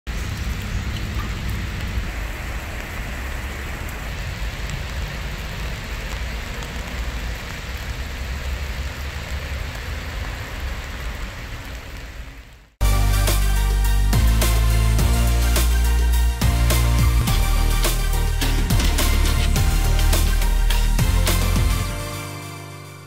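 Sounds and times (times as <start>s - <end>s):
rain falling on puddles: 0.1s - 22.5s
low rumble: 12.8s - 21.9s.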